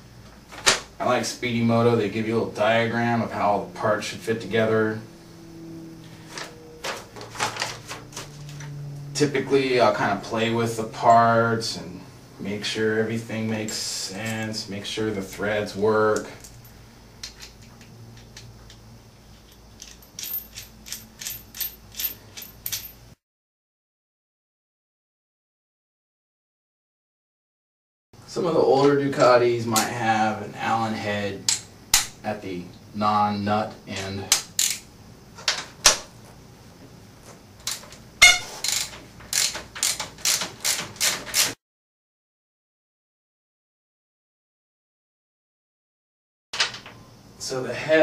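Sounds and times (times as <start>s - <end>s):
small metal parts clicking: 16.1s - 23.1s, 34.0s - 36.0s, 37.6s - 41.6s.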